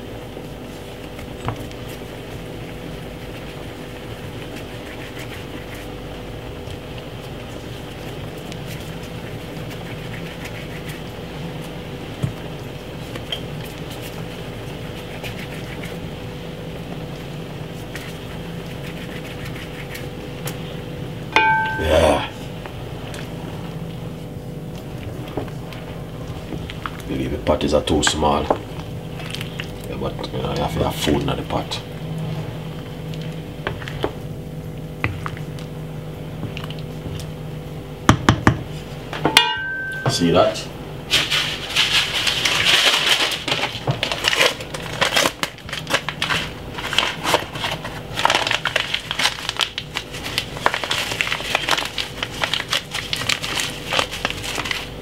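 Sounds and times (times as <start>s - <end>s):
kitchen hum: 0.0s - 55.0s
hands working dough in glass bowl: 0.4s - 16.2s, 16.9s - 20.5s
wooden spoon knocking steel pot: 21.4s - 21.8s.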